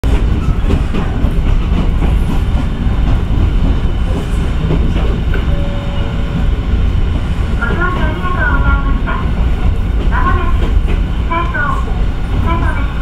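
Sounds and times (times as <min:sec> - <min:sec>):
clacks over rail joints: 0:00.0 - 0:05.6
train wheels rumbling on rails: 0:00.0 - 0:13.0.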